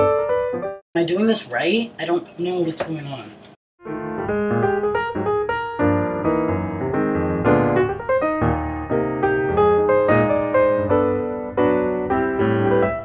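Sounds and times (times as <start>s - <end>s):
piano music: 0.0s - 0.8s, 3.8s - 13.0s.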